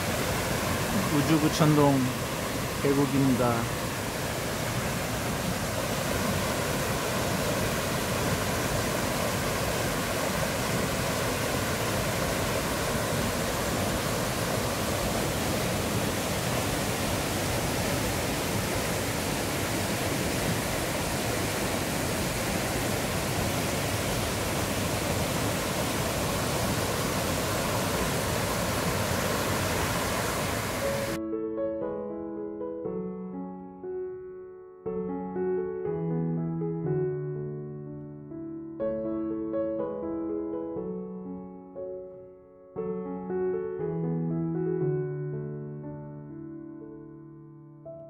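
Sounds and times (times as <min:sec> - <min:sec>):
stream rushing over boulders: 0:00.0 - 0:31.2.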